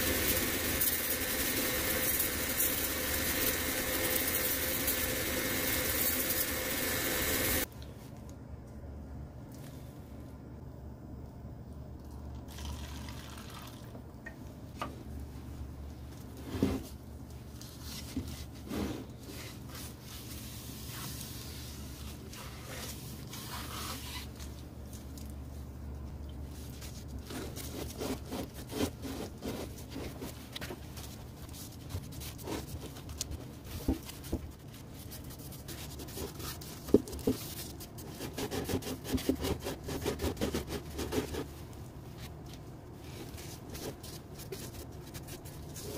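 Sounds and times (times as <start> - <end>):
low steady hum: 1.5 - 45.9
liquid pouring into paper cup: 12.4 - 14.0.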